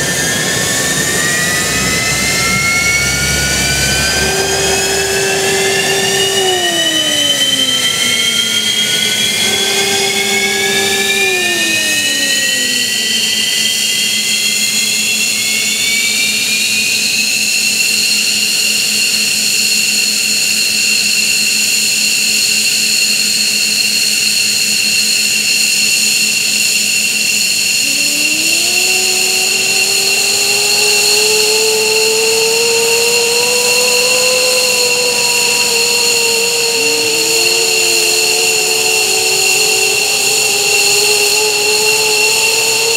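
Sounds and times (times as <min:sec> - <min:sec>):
lower climbing engine tones: 0:00.0 - 0:17.8, 0:27.4 - 0:42.9
jet engine whine spooling up: 0:00.0 - 0:42.9.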